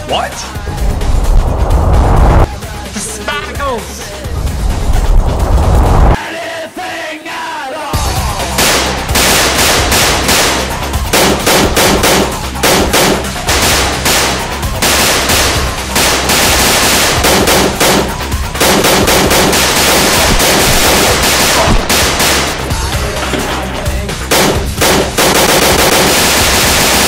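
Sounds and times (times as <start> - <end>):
background music with low beat: 0.0 - 6.1, 8.0 - 26.2
gunshot sound effects: 8.5 - 22.7, 24.3 - 27.0.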